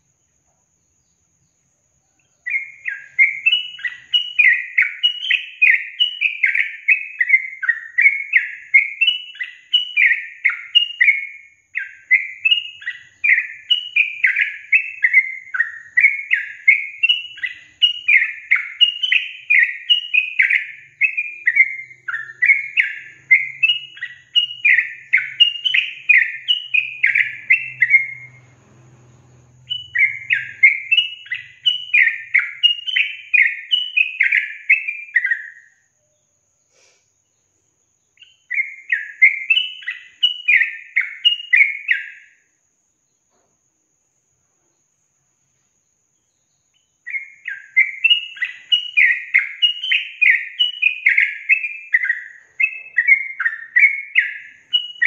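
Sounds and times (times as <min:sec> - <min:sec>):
bulbul singing chattering phrases: 0:47.2 - 0:55.0.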